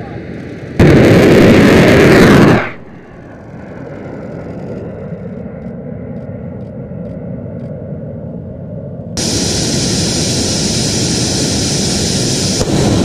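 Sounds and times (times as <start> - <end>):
rocket booster roar: 0.0 - 4.8, 9.2 - 13.0
jet engine rushing: 0.0 - 13.0.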